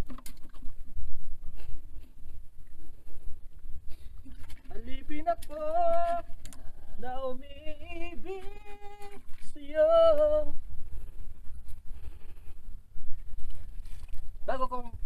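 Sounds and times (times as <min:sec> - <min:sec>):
person singing unaccompanied: 0:04.7 - 0:10.6.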